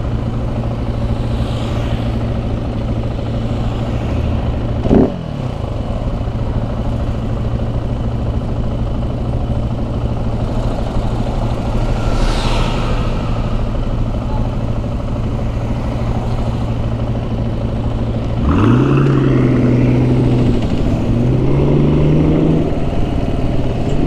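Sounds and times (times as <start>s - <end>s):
vehicle passing by: 0.0s - 6.6s, 9.4s - 24.0s
engines idling in traffic: 0.0s - 24.0s
engine revving: 1.1s - 5.8s, 9.7s - 24.0s.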